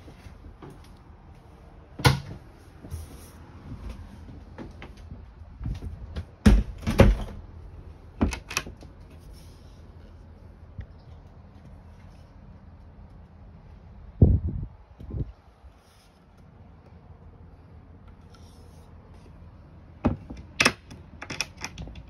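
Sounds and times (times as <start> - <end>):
cupboard doors knocking and clicking: 6.1 - 7.4.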